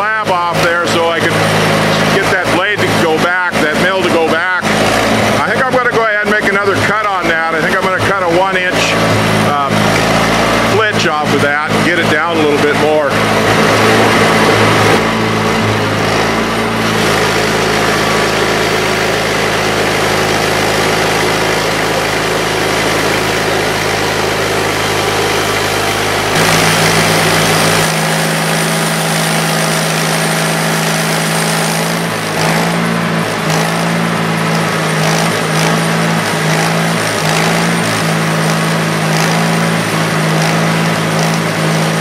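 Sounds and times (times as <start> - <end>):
band sawmill cutting log: 0.0 - 42.0.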